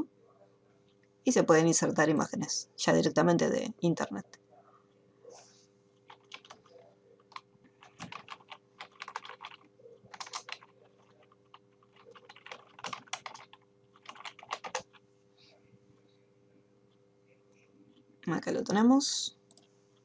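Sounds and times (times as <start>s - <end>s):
typing on computer keyboard: 6.1s - 15.0s.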